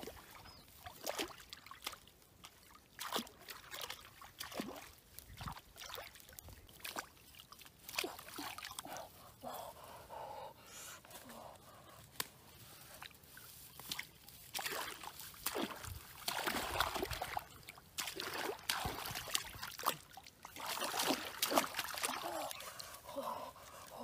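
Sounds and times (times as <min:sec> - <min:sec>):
grass brushing: 0:12.1 - 0:15.6
hands splashing in water: 0:13.7 - 0:22.6.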